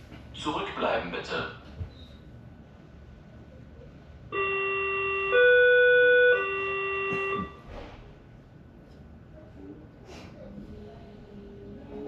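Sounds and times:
electronic door warning tones: 4.3s - 7.8s.

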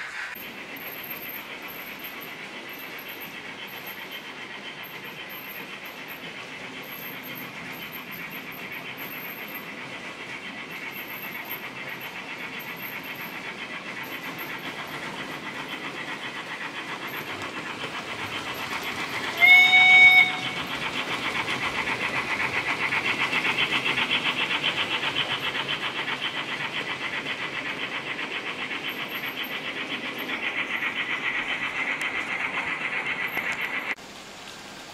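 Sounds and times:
model steam train chuffing: 0.0s - 34.9s
train whistle blast: 19.3s - 20.7s.

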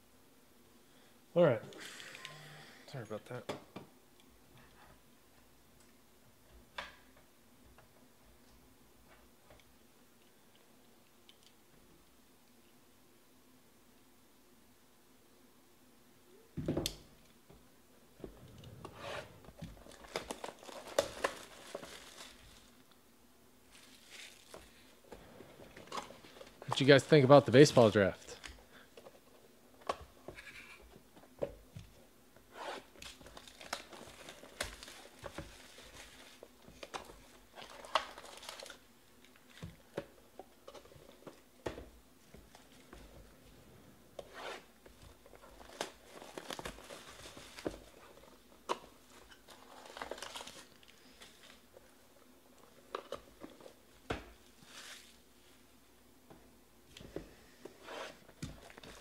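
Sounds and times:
wrappers tearing and crinkling: 19.8s - 22.8s, 23.7s - 24.8s, 32.6s - 39.6s, 44.3s - 48.2s, 49.0s - 51.6s, 57.9s - 59.0s.

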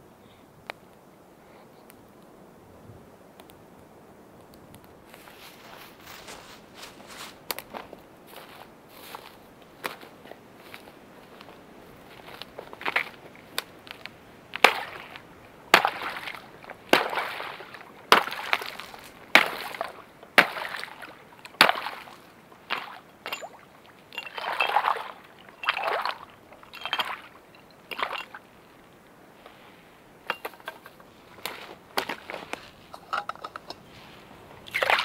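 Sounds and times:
water splashing and sloshing: 5.1s - 29.6s, 30.2s - 35.0s
axe cracking ice: 14.6s - 22.1s
ice shards clinking: 22.7s - 28.5s, 30.2s - 33.9s.

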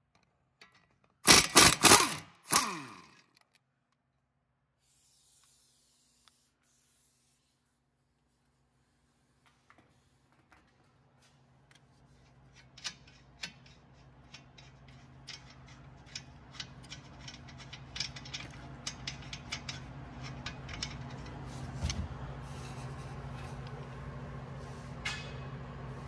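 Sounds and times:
low steady hum: 6.7s - 26.0s.

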